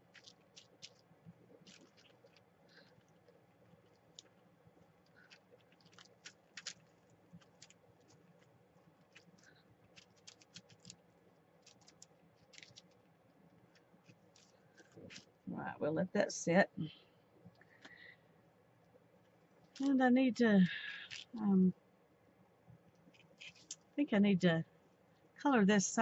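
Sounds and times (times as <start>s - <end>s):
sponge scratching and tapping paper: 0.0s - 4.4s, 5.0s - 11.0s, 11.6s - 13.0s, 13.7s - 15.3s, 23.1s - 23.8s.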